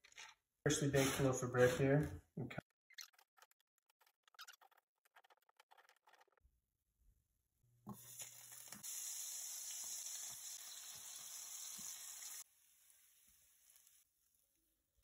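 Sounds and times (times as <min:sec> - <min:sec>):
bread sizzling in hot oil: 0:07.9 - 0:14.5.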